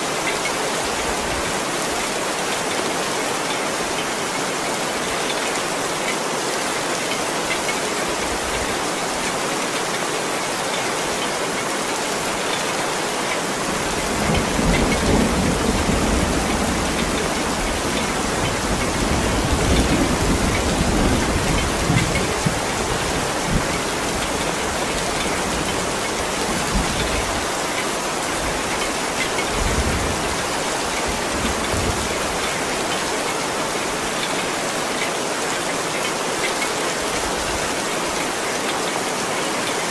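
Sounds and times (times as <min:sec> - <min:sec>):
heavy rain falling: 0:00.0 - 0:39.9
low rumble of thunder: 0:13.9 - 0:22.7.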